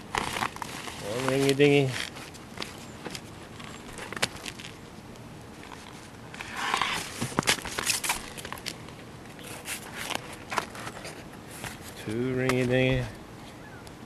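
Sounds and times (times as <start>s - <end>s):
rubber roll clicks and crackles: 0.0s - 13.1s
short rustle: 0.1s - 4.9s.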